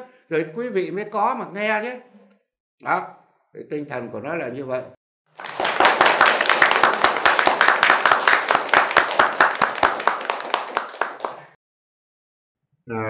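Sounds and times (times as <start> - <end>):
people clapping: 5.3 - 11.6.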